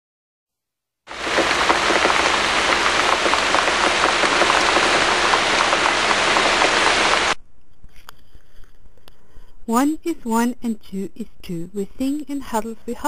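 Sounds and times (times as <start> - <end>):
heavy rain: 1.1 - 7.4.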